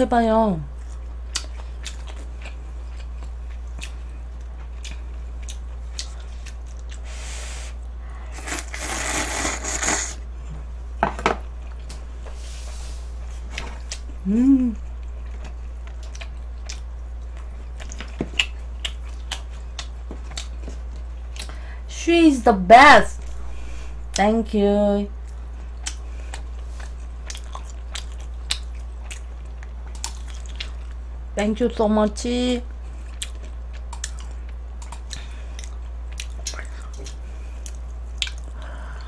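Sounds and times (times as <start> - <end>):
steady low hum: 0.0 - 39.0
person humming: 14.2 - 14.8.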